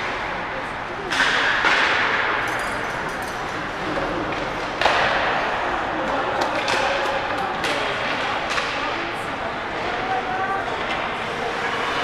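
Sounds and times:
hockey stick knock: 4.3 - 5.4.

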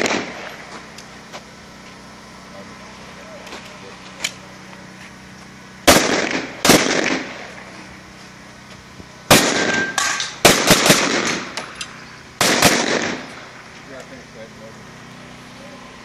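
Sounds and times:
pistol gunshots: 0.0 - 0.6, 5.8 - 7.6, 9.3 - 11.7, 12.4 - 13.5.

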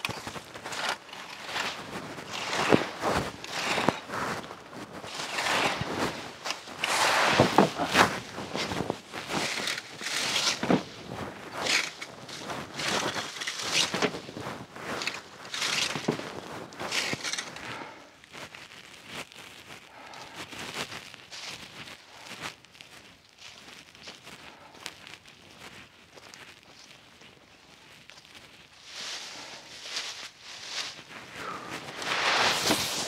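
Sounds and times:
rake through dry leaves: 0.0 - 33.0.

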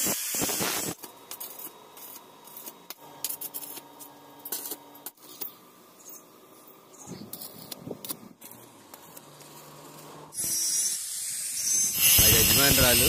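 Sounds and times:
tool clicks and scraping: 7.0 - 13.0.

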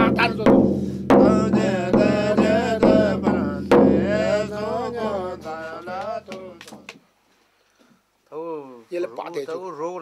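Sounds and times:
sharp knock: 0.0 - 7.0
person chanting: 1.2 - 6.9.

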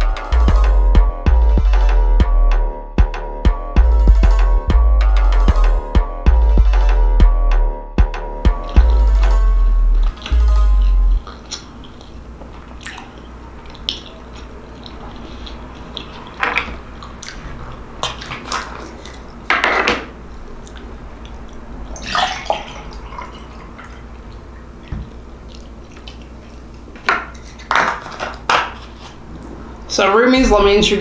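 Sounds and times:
low steady hum: 8.4 - 31.0
close-up eating sounds: 10.1 - 19.5, 20.1 - 29.9
juice pouring into a glass: 21.9 - 24.4.

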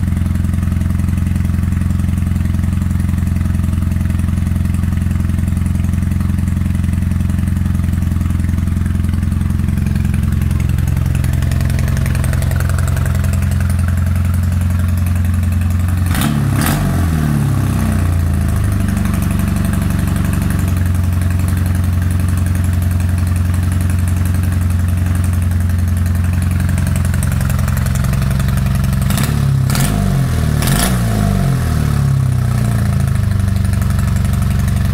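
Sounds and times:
motorcycle engine idling roughly: 0.0 - 34.9
engine revs rising with pops: 16.0 - 17.9, 29.0 - 31.7.

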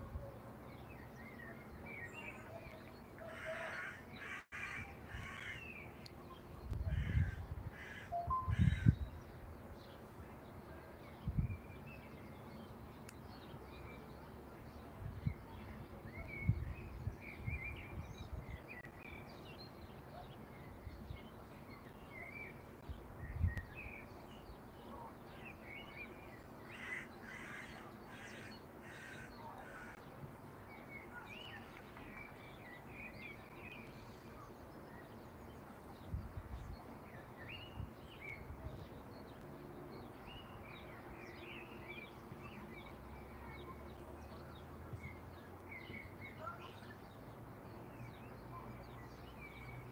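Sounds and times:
small birds chirping: 0.6 - 49.9
harsh caw-like bird calls: 3.2 - 5.7, 6.9 - 9.0, 26.7 - 30.0.

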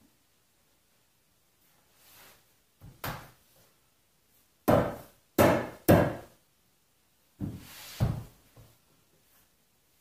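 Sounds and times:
sharp wooden knocks: 4.7 - 6.3.

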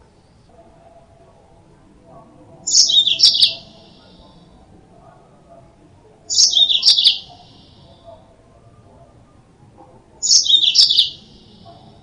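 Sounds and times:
canary twittering: 2.6 - 4.4, 6.3 - 8.1, 10.2 - 11.9.

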